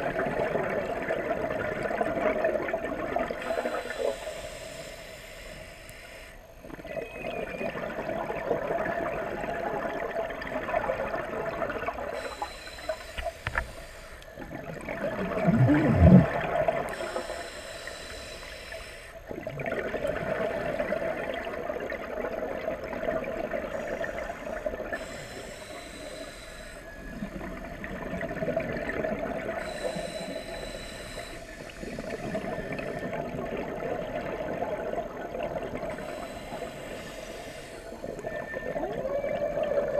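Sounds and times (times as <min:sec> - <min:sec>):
hissing regulator inhale: 0:03.3 - 0:06.6, 0:12.1 - 0:14.4, 0:15.4 - 0:19.4, 0:23.7 - 0:27.4, 0:29.2 - 0:33.3, 0:35.7 - 0:38.5
bubbling exhales underwater: 0:14.4 - 0:17.0.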